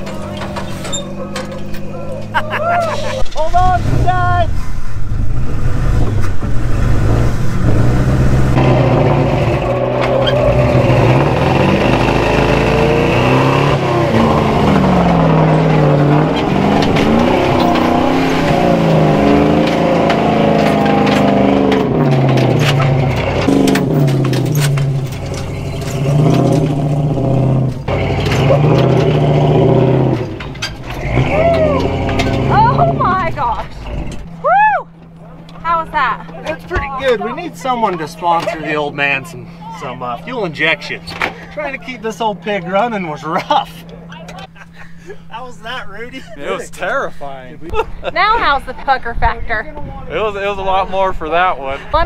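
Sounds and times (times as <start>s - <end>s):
truck engine revving under load: 0.0s - 45.5s
sharp clicks and knocks: 14.7s - 18.0s, 19.2s - 27.0s.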